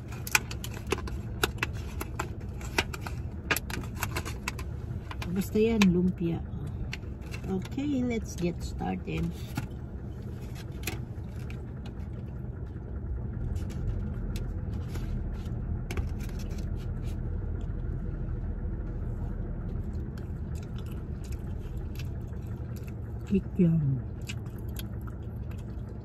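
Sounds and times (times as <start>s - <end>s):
car cabin rumble: 0.0s - 26.0s
crisp biting and chewing: 19.7s - 23.3s, 24.1s - 26.0s.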